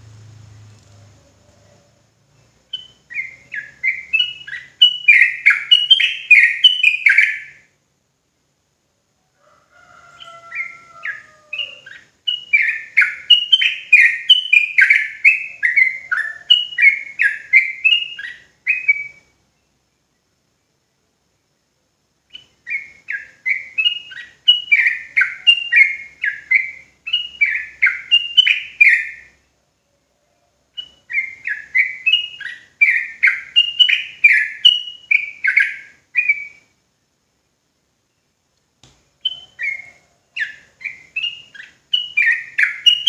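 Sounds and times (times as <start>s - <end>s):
bird song chattering whistles: 2.7s - 7.7s, 10.2s - 19.8s, 22.3s - 29.5s, 30.7s - 36.8s, 39.1s - 43.0s.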